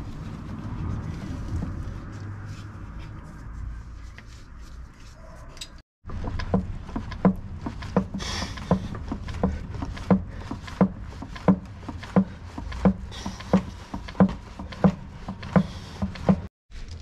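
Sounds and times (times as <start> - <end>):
hand pump strokes: 6.2 - 16.5.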